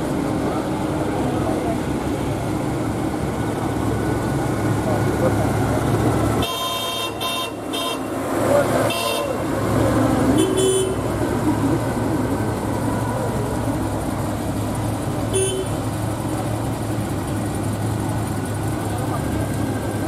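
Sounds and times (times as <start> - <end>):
vehicle engines running: 0.0 - 20.0
car horn toots: 6.4 - 8.2, 8.8 - 9.4, 10.3 - 11.1, 15.3 - 15.8.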